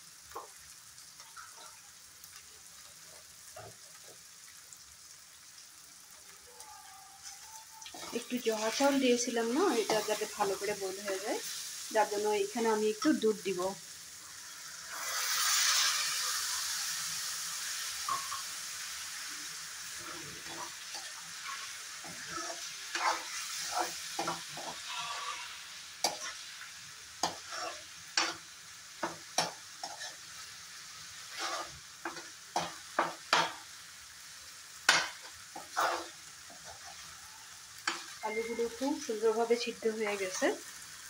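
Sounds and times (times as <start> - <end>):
curry simmering sizzle: 0.0 - 41.0
milk hissing in hot pan: 0.0 - 41.0
spoon scraping and knocking pan: 9.7 - 10.4, 18.0 - 18.6, 20.2 - 26.4, 27.2 - 28.4, 29.0 - 30.3, 31.2 - 33.6, 34.9 - 37.2, 37.8 - 38.8.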